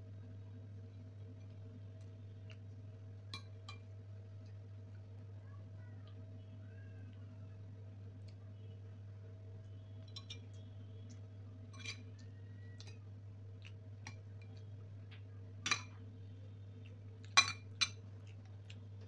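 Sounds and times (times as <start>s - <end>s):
steady low hum: 0.0s - 19.0s
metal spoon clinking ceramic plates: 11.8s - 12.2s, 17.4s - 18.0s.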